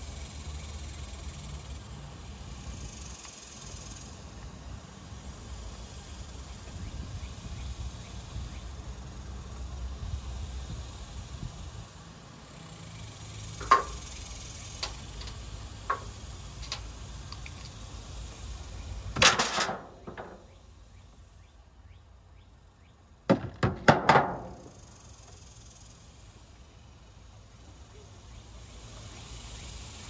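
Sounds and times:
items clattering in metal dumpster: 19.2s - 20.4s.

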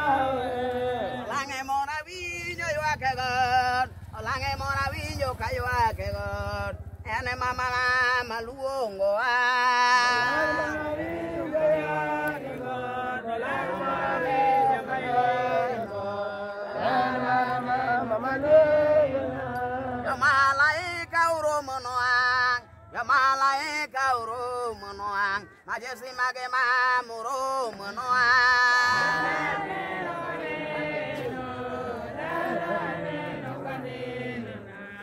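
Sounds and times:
congregation chanting a hymn: 0.0s - 3.6s, 8.8s - 24.2s, 27.6s - 35.0s.

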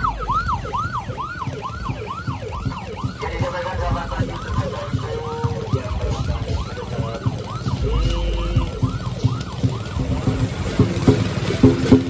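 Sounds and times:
emergency siren yelping: 0.0s - 12.0s
low engine rumble: 0.0s - 12.0s.

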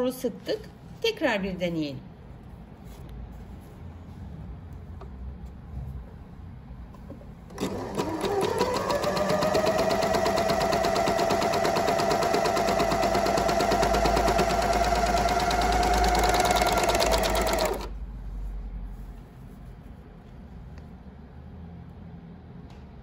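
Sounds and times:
overlock machine stitching: 7.5s - 18.0s.

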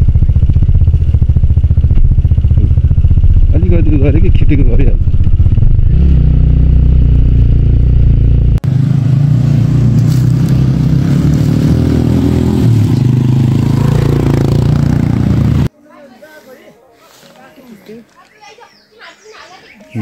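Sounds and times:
motorcycle engine running at low speed: 0.0s - 15.7s.

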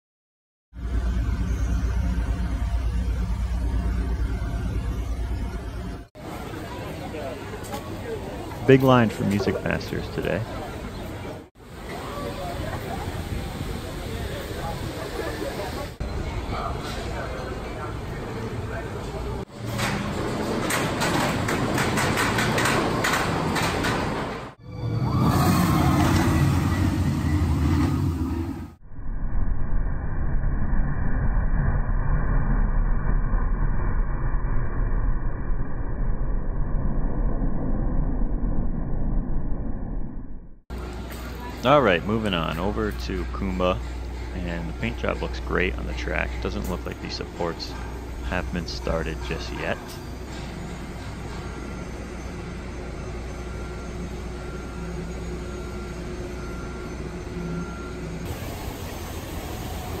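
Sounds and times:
faint mechanical hum: 0.8s - 24.6s, 40.7s - 60.0s
water ride spray rushing: 11.6s - 16.0s, 58.3s - 60.0s
outdoor background rumble: 15.9s - 60.0s.

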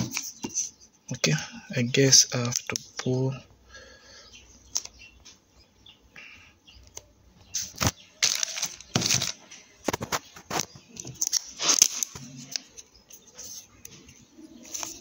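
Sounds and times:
plastic wrapping crinkling: 7.6s - 12.7s.

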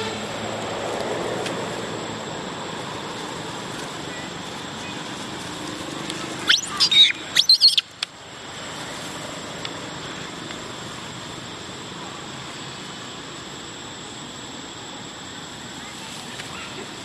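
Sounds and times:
steady background hiss: 0.0s - 17.0s
monkey screaming: 6.4s - 7.9s.

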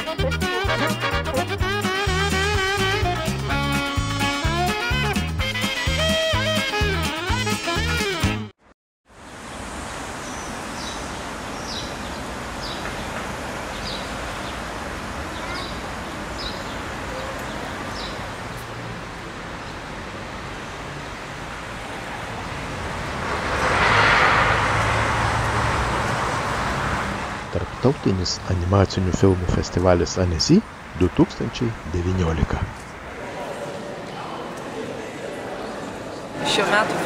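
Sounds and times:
car passing: 9.2s - 37.0s
bird chirping: 10.2s - 14.6s.

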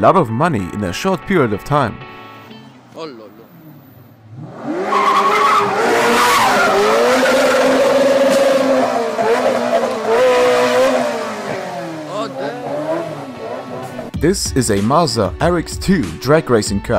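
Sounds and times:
sports car engine revving: 3.4s - 14.2s
tyres squealing: 4.6s - 14.1s.

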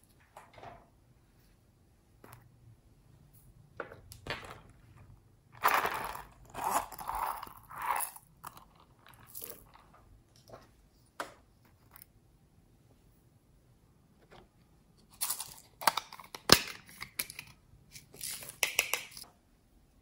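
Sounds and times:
plastic toys clicking: 18.3s - 19.2s.

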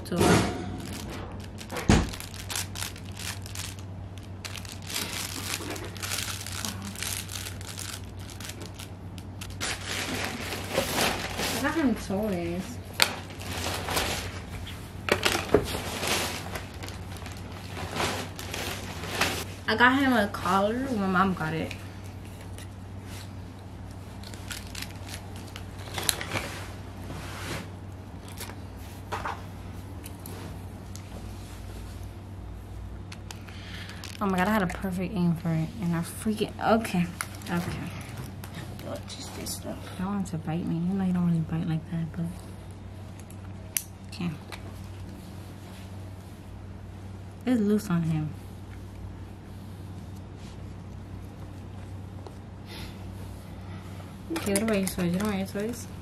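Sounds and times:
low steady hum: 0.0s - 56.0s
toy fabric crinkling: 0.8s - 11.7s, 15.2s - 19.5s, 24.2s - 26.5s
collar clicks and rustles: 54.3s - 55.8s.

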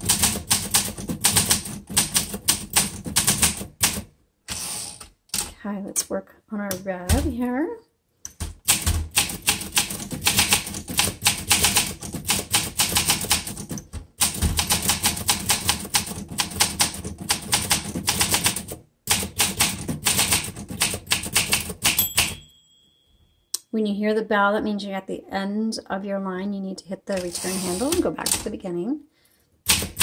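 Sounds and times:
manual typewriter typing: 0.0s - 5.6s, 8.3s - 22.4s, 27.1s - 28.6s, 29.6s - 30.0s.

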